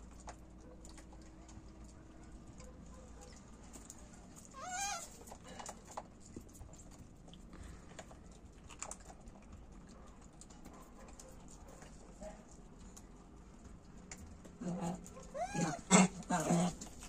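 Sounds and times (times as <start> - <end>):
monkey squealing: 4.5 - 5.2, 15.3 - 16.0.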